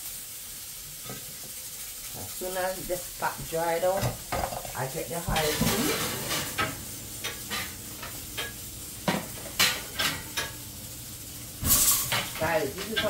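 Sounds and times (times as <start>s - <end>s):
metal kitchenware clinking: 5.3s - 10.6s, 11.6s - 13.0s.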